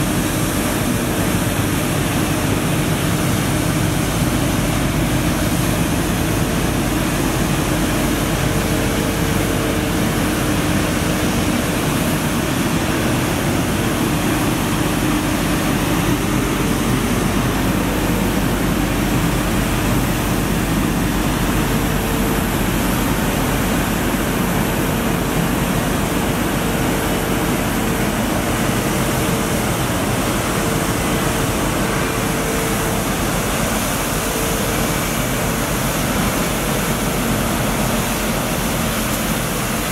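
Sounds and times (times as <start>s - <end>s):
engine hum: 0.0s - 39.9s
street sweeper rushing noise: 0.0s - 39.9s
water spraying: 0.0s - 39.9s.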